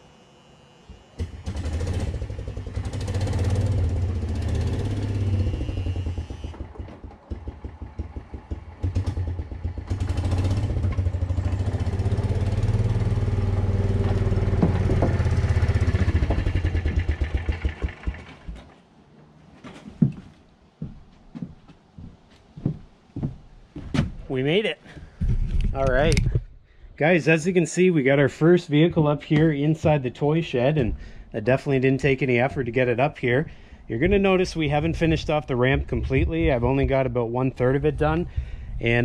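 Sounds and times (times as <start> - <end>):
golf cart engine running: 1.2 - 18.7.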